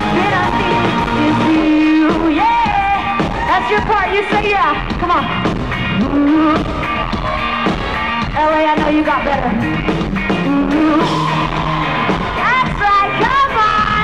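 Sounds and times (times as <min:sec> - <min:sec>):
woman singing: 0:00.0 - 0:05.3, 0:05.9 - 0:06.9, 0:10.4 - 0:11.3, 0:12.4 - 0:14.0
live rock band playing: 0:00.0 - 0:14.0.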